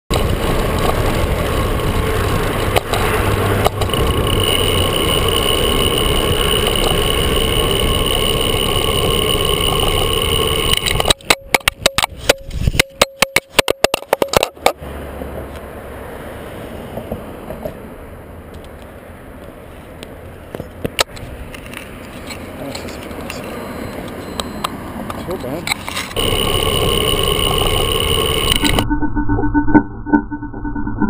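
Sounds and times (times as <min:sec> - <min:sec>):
bicycle tyre and wind noise: 0:00.1 - 0:13.0, 0:25.8 - 0:28.8
camera clattering on pavement: 0:02.6 - 0:04.9, 0:06.3 - 0:14.8, 0:18.5 - 0:24.5, 0:25.1 - 0:26.2
low rumble: 0:26.2 - 0:31.0.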